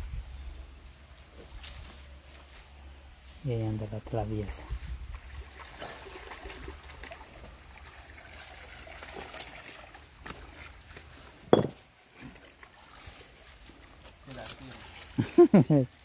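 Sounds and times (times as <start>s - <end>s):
swimmer splashing water: 5.2s - 15.7s.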